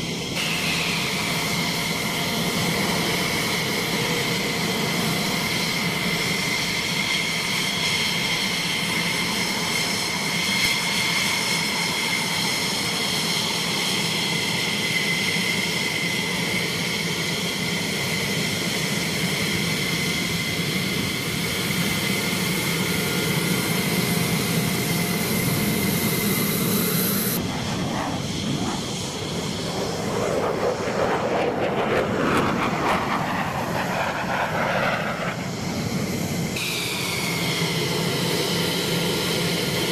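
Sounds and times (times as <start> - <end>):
jet engine whining: 0.0 - 39.9
jet climbing rushing noise: 25.4 - 37.9.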